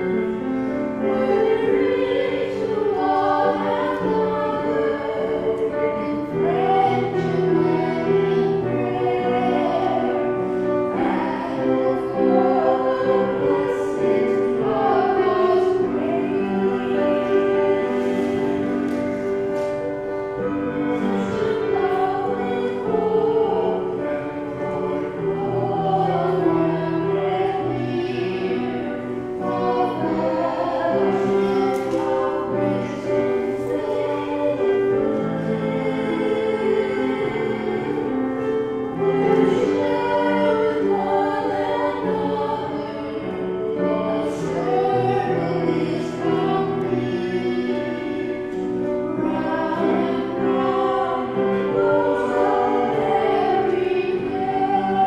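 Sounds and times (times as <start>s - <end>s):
group singing a hymn: 0.0s - 55.0s
piano accompaniment: 0.0s - 55.0s.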